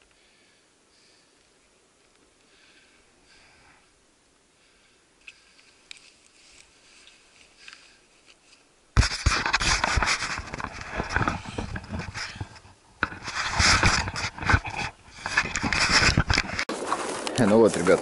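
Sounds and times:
camera rubbing on jacket: 9.0 - 18.0.

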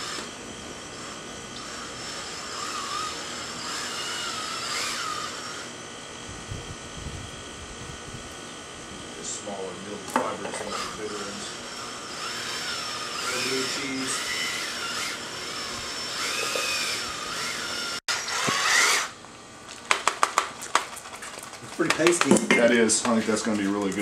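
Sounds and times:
electric drill mixing: 0.0 - 19.2, 21.5 - 24.0
paddle knocking against bucket: 21.8 - 22.7.

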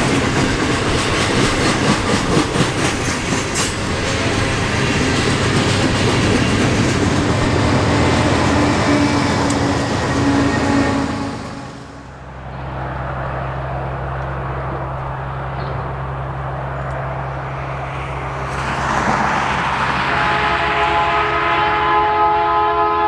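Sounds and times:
diesel locomotive drone: 0.0 - 23.0
freight train rumbling: 0.0 - 23.0
multi-tone air horn: 8.5 - 12.0, 19.9 - 23.0.

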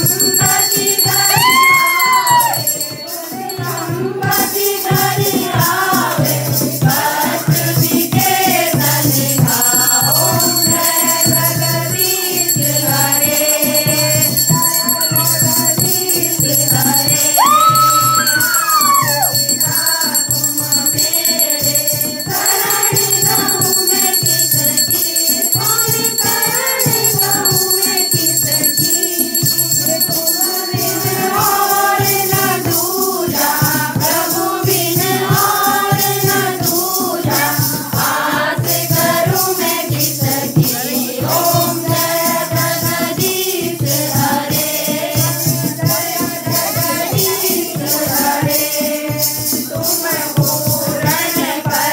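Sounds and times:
shaken hand percussion: 0.0 - 51.9
women singing devotional song: 0.0 - 51.9.

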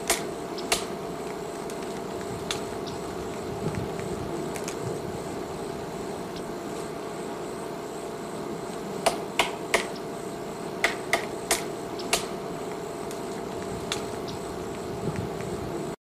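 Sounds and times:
woodpecker tapping: 0.0 - 4.8, 9.0 - 10.1, 10.8 - 15.5
steady background noise: 0.0 - 16.0.

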